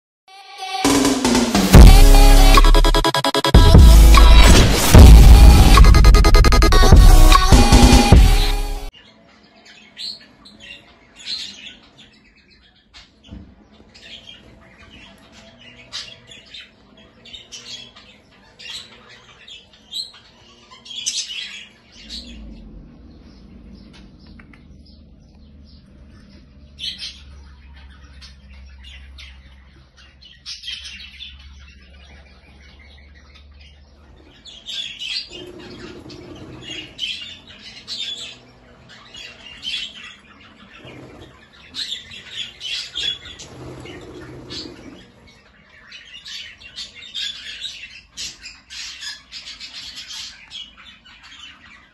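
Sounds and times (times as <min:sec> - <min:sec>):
budgerigars chirping: 0:23.2 - 0:51.9.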